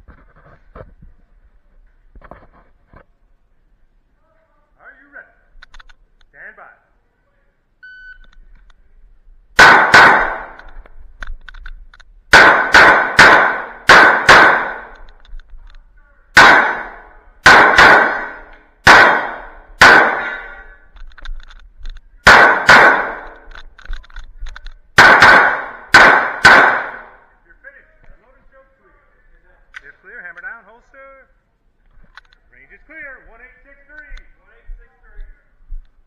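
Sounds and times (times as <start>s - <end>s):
pistol shots: 9.6s - 10.7s, 12.3s - 15.1s, 16.3s - 20.6s, 22.2s - 23.5s, 25.0s - 27.2s.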